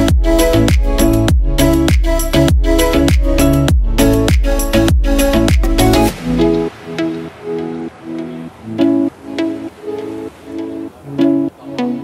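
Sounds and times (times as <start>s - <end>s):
light instrumental music: 0.0s - 12.0s.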